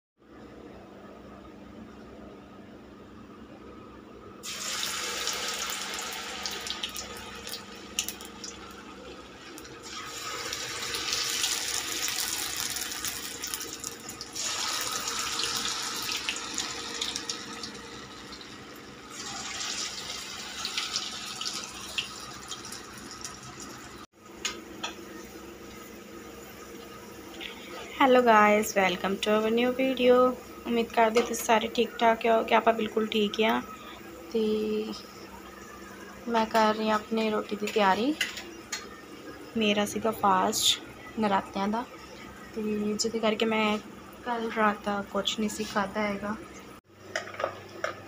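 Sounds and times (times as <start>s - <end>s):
batter sizzling in hot oil: 4.4s - 24.1s.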